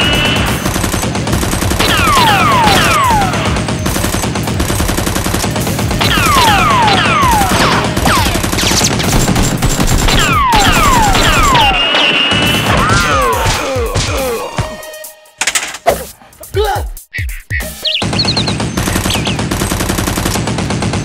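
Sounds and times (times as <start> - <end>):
automatic gunfire sound effects: 0.0 - 13.7, 18.0 - 21.0.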